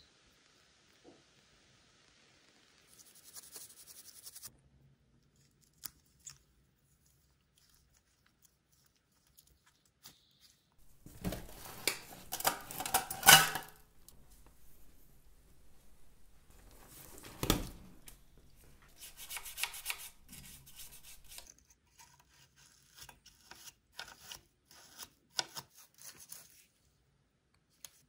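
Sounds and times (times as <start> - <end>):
crackling and scraping: 5.2 - 24.2.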